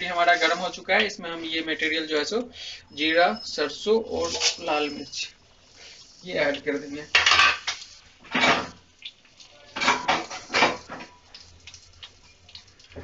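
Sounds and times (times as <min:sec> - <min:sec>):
spices spluttering in hot oil: 0:04.6 - 0:13.0.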